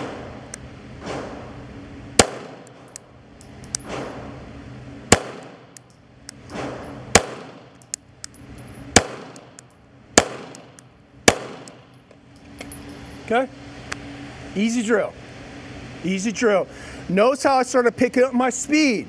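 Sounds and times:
pistol shots with echo: 2.2 - 2.7, 5.1 - 5.8, 7.1 - 7.8, 9.0 - 9.6, 10.2 - 11.9.

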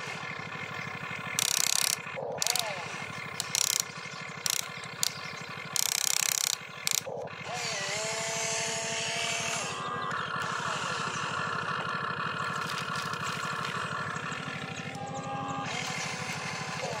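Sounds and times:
electric gear motors buzzing: 0.0 - 17.0
ratcheting gear clatter: 1.2 - 7.2
motor whine gliding up: 1.4 - 17.0.

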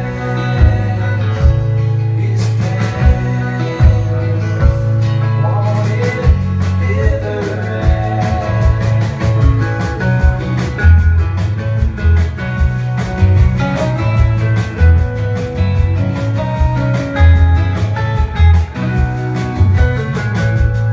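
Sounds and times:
person singing: 0.0 - 10.8
folk-rock band playing: 0.0 - 20.9.

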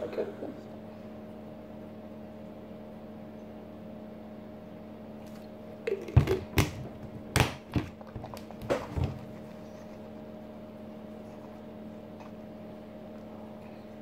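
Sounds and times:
plastic bottle knocking on counter: 6.0 - 8.0.

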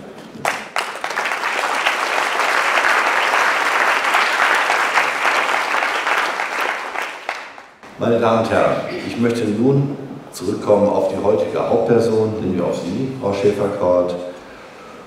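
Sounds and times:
audience applauding: 0.4 - 7.8.

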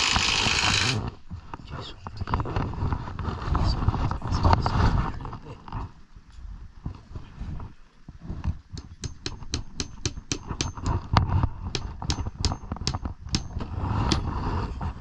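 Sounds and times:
hammer striking nails: 8.7 - 14.2.

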